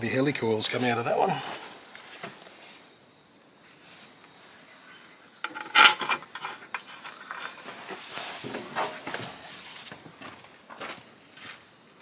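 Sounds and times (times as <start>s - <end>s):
metal tools clinking and scraping: 5.4s - 8.0s.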